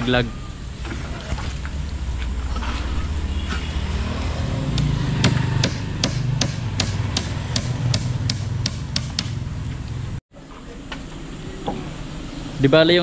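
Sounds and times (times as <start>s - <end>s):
steady low rumble: 0.0s - 10.2s
hammer striking: 3.4s - 9.4s.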